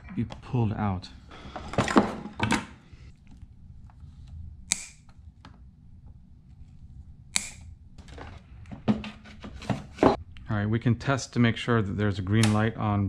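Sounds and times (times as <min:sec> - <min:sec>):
cutters snipping wire ties: 0:04.7 - 0:05.1, 0:07.4 - 0:07.6.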